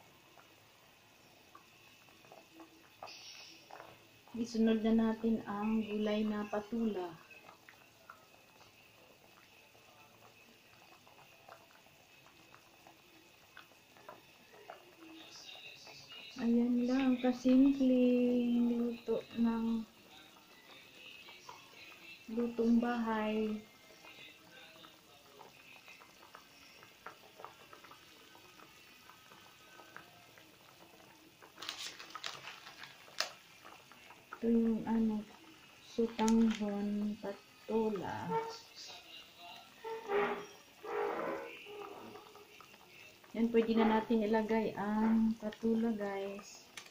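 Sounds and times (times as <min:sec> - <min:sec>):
broth boiling with small pops: 0:00.0 - 0:46.9.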